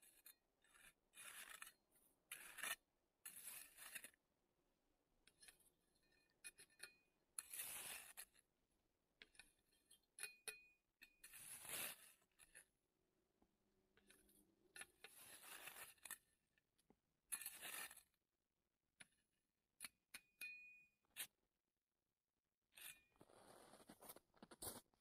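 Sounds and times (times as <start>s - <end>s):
shovel scraping into snow: 2.3s - 4.1s, 7.4s - 8.4s, 11.2s - 12.5s, 15.0s - 16.1s, 17.4s - 18.1s, 22.8s - 24.9s.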